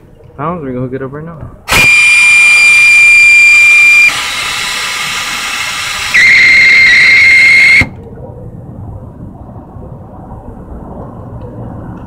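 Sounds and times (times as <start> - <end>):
compressed air whistling hiss: 1.7 - 8.0.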